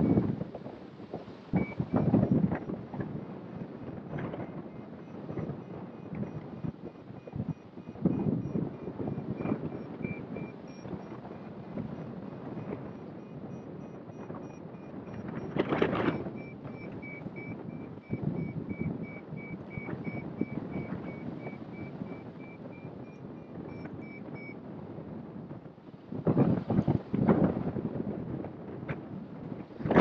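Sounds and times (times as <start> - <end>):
variometer high beeps: 0.0 - 0.2, 1.6 - 2.4, 4.9 - 24.6
wind rushing over microphone: 0.0 - 30.0.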